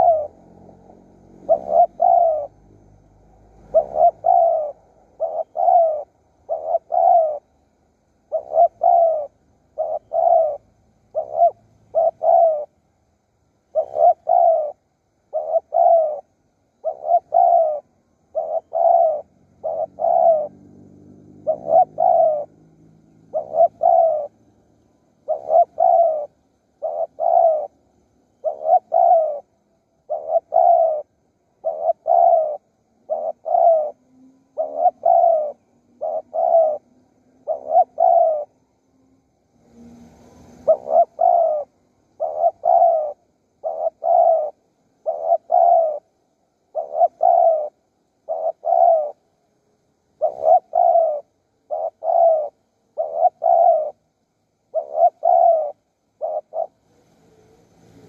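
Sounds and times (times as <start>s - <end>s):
dove cooing: 0.0s - 58.0s
faint low hum: 0.0s - 58.0s.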